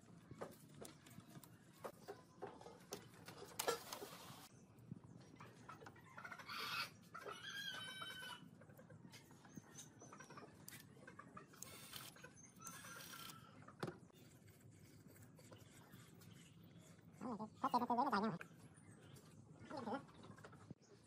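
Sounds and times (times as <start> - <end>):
chickens clucking: 5.4 - 11.6.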